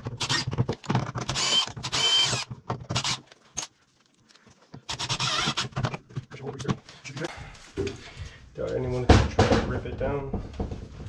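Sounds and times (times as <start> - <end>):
impact driver driving screws: 0.0 - 3.7, 4.9 - 6.0.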